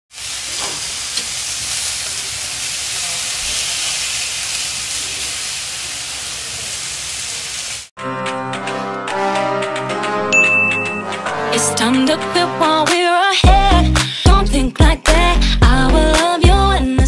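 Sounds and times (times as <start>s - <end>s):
steaks sizzling on grill pan: 0.1s - 7.9s
music with bell-like tones: 10.3s - 11.3s.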